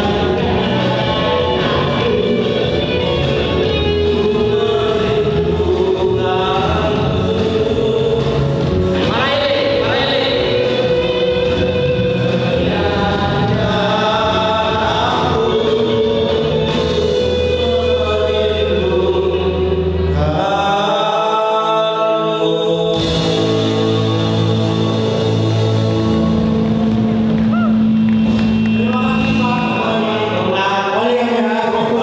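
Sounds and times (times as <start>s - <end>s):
instrumental accompaniment: 0.0s - 20.4s
two men singing: 0.0s - 26.7s, 28.7s - 32.0s
bass line: 0.0s - 32.0s.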